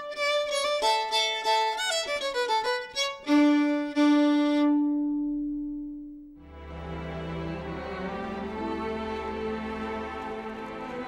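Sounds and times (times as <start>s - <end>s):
violin music: 0.0s - 11.0s.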